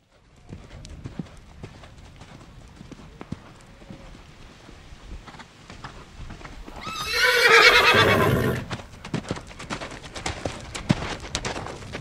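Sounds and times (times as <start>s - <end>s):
galloping hoofbeats: 0.0s - 12.0s
horse whinnying: 6.8s - 8.7s.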